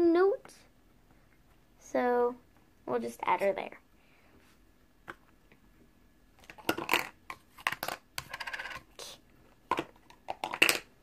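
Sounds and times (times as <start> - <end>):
plastic toy pieces clattering: 6.4 - 9.0, 9.7 - 10.9.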